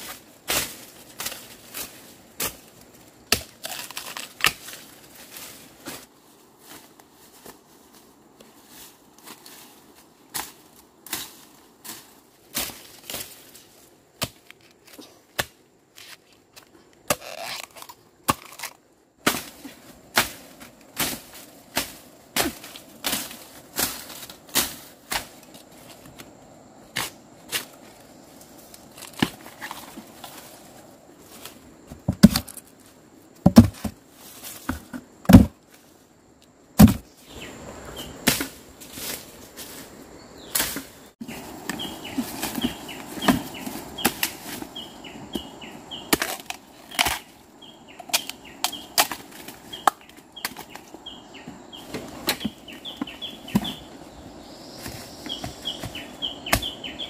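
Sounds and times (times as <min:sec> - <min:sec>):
dry leaves rustling: 0:27.1 - 0:36.2, 0:37.0 - 0:57.0
bird chirping: 0:37.1 - 0:38.2, 0:40.2 - 0:49.0, 0:49.7 - 0:57.0.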